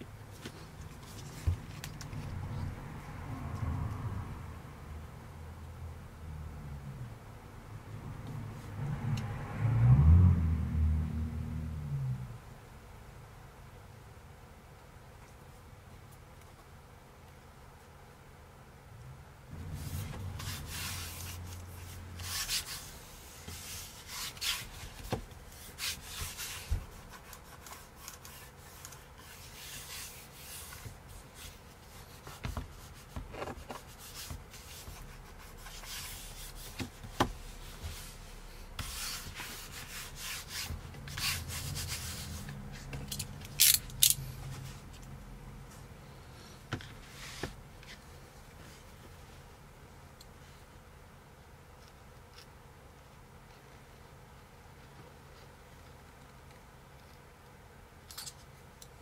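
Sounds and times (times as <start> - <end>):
hands brushing vinyl skin: 0.3 - 2.8, 19.6 - 43.6, 46.9 - 49.2.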